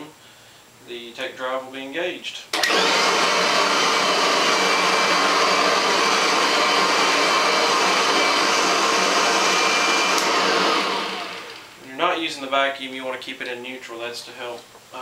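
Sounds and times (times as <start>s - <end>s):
motor winding down whine: 2.6s - 11.7s
vacuum cleaner running: 2.6s - 11.9s.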